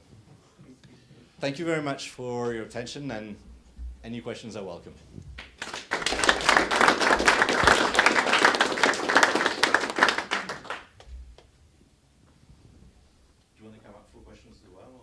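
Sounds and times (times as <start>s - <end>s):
small audience applauding: 5.4s - 11.5s.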